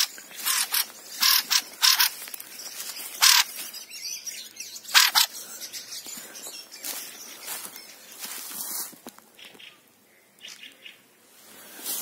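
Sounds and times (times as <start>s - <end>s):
thrush harsh calls: 0.0s - 2.3s, 3.0s - 3.7s, 4.9s - 5.4s.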